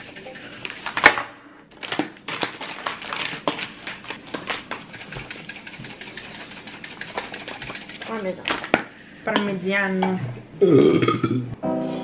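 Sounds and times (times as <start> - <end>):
plastic packet handled: 1.7 - 8.8
containers clicking and tapping: 3.2 - 9.5.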